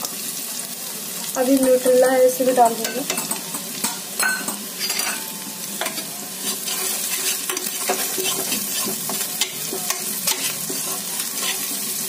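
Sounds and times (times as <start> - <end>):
food sizzling in hot oil: 0.0 - 12.0
spatula scraping metal pot: 5.8 - 11.9.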